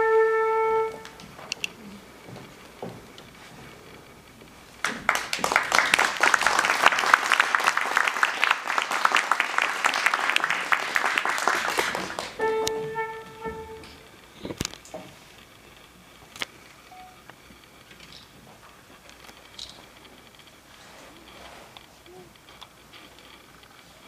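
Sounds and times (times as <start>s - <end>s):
flute held note: 0.0s - 1.2s, 12.4s - 14.1s
audience applauding: 4.8s - 14.0s.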